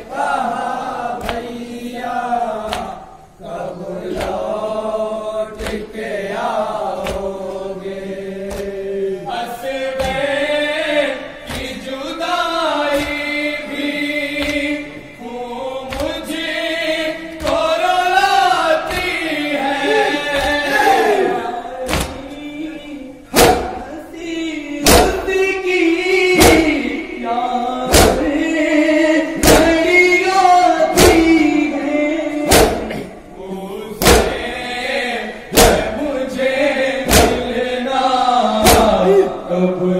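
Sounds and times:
voices chanting a lament: 0.0 - 39.9
hand slaps on chest: 1.2 - 1.5, 5.6 - 5.8, 7.0 - 7.3, 8.5 - 8.7, 10.0 - 10.2, 11.5 - 11.8, 12.9 - 13.2, 14.4 - 14.7, 21.9 - 22.2, 26.4 - 26.8, 27.9 - 28.3, 29.4 - 29.8, 31.0 - 31.3, 32.5 - 33.0, 34.0 - 34.4, 37.1 - 37.5, 38.6 - 39.0.

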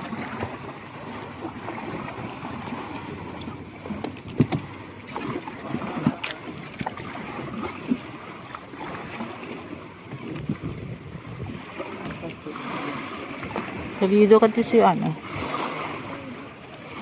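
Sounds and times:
water lapping at a boat: 0.0 - 17.0
wind on the microphone: 10.1 - 14.2.

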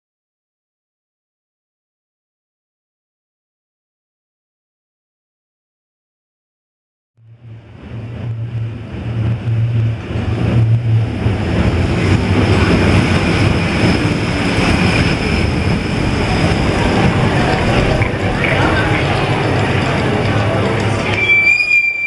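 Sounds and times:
tram wheels rumbling on rail: 7.2 - 22.0
thin high whine: 15.0 - 22.0.

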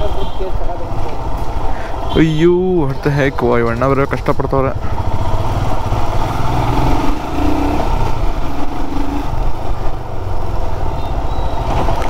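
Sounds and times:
motorcycle engine running: 4.7 - 10.9.

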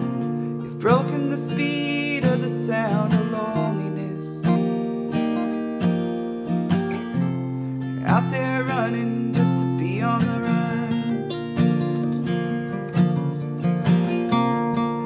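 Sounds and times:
acoustic guitar strumming: 0.0 - 15.0
sliding lead melody: 0.0 - 15.0.

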